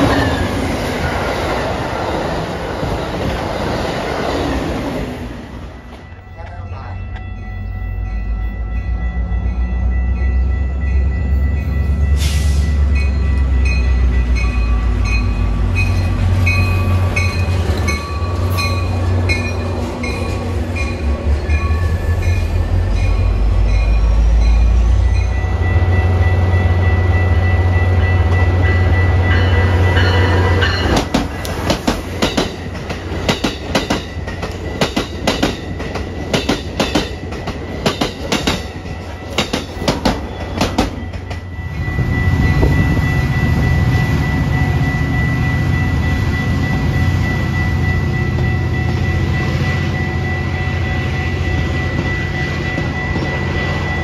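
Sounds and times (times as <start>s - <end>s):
train wheels clacking over rail joints: 30.8s - 41.5s.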